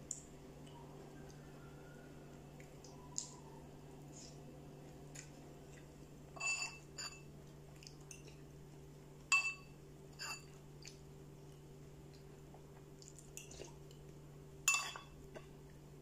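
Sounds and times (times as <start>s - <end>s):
spoon clinking against bowl: 6.4s - 7.3s, 9.3s - 10.5s, 14.7s - 15.2s.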